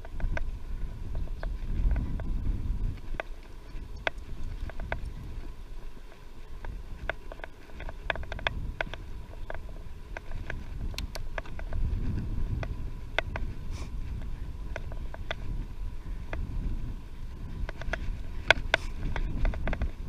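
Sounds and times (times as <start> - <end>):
wind buffeting microphone: 0.0 - 20.0
small sharp clicks and rattles: 3.0 - 5.4, 6.0 - 13.5, 17.5 - 20.0.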